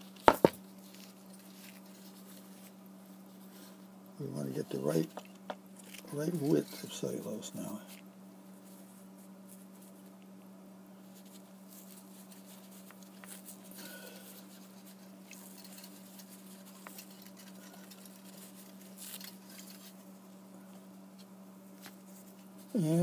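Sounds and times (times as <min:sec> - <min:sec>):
gloved fingers rustling plastic sheet: 0:00.0 - 0:03.7, 0:11.0 - 0:22.7
steady low hum: 0:00.0 - 0:23.0.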